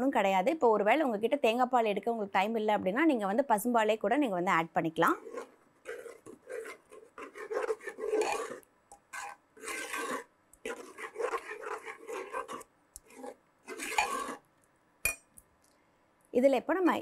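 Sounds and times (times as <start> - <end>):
metal ladle scraping metal pot: 5.1 - 14.4.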